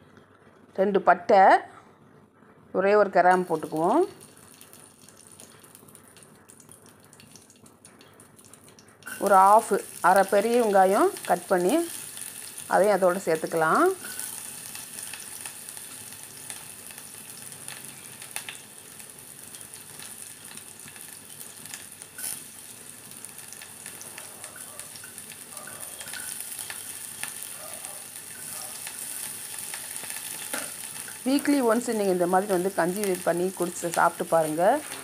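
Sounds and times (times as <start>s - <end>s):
crackles and pops of frying: 3.2s - 35.0s
onion sizzling in hot oil: 3.2s - 35.0s.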